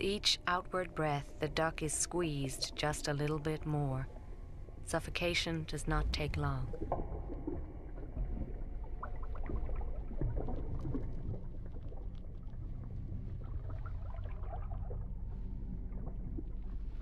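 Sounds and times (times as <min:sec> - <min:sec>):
low steady drone: 0:00.0 - 0:17.0
underwater bubbling and gurgling: 0:06.0 - 0:17.0.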